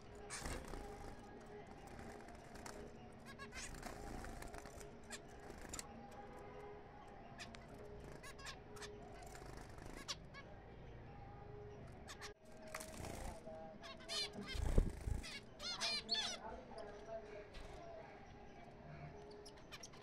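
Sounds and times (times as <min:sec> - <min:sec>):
finches beeping calls: 0:12.0 - 0:17.2.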